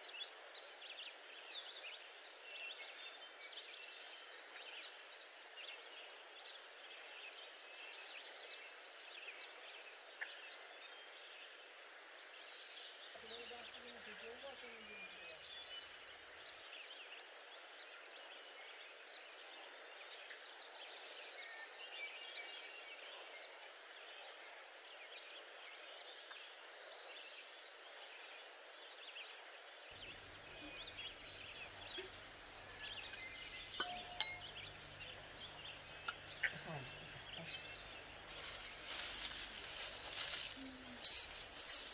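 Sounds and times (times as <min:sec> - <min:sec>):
small birds chirping: 0:00.0 - 0:24.1, 0:29.9 - 0:41.9
glass dishes clinking: 0:32.9 - 0:34.6.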